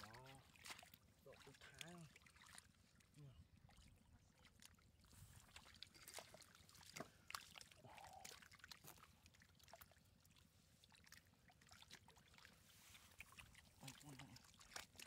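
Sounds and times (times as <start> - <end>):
splashes in muddy water: 0.0 - 3.1, 10.9 - 15.0.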